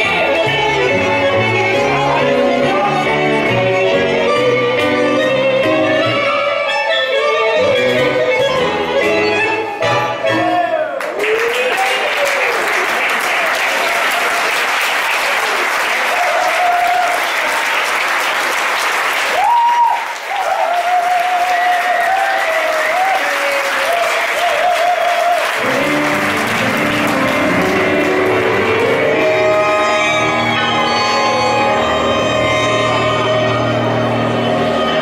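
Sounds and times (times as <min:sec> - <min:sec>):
tango trio playing: 0:00.0 - 0:10.9, 0:25.6 - 0:35.0
audience applauding: 0:11.0 - 0:30.8.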